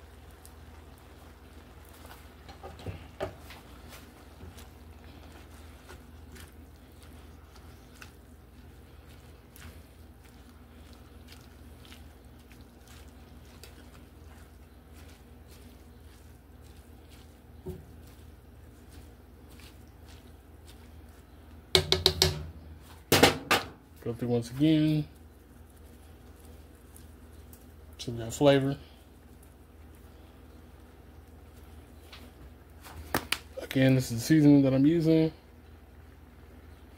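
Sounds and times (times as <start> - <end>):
greens crackling in a skillet: 0.0 - 36.9
utensil knocking against pan: 21.7 - 22.5.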